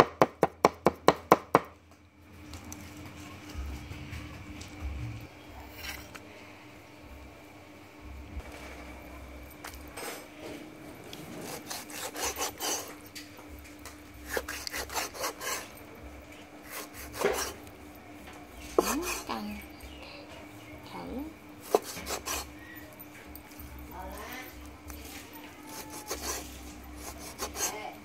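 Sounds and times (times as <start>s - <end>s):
cleaver chopping meat: 0.0s - 1.7s, 11.4s - 12.9s, 14.2s - 15.7s, 16.7s - 17.6s, 21.6s - 22.5s, 27.0s - 27.8s
rubbing on wooden board: 14.3s - 15.7s, 18.8s - 19.3s, 25.8s - 27.9s.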